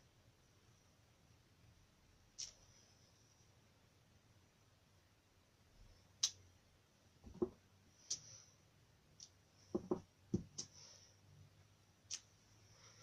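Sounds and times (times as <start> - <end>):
stamping block tapping on cardstock: 9.8 - 10.6.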